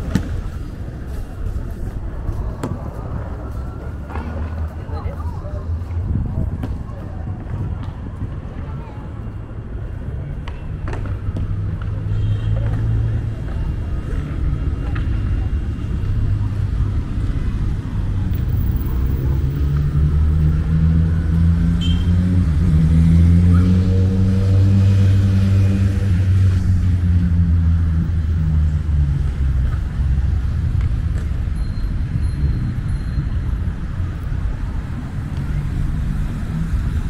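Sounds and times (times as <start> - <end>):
vehicle engine rumble: 0.0 - 37.0.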